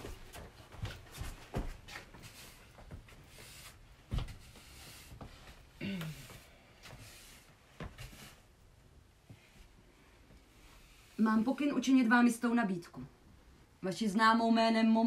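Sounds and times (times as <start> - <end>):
broom sweeping a floor: 1.9 - 8.6, 10.4 - 11.7.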